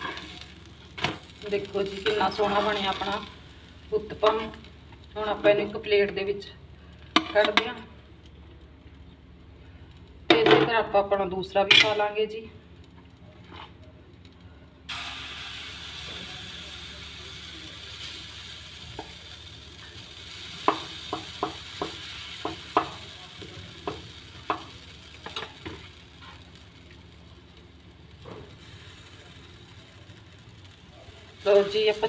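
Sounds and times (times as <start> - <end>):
batter sizzling in a hot pan: 0.0 - 8.3, 14.9 - 32.0.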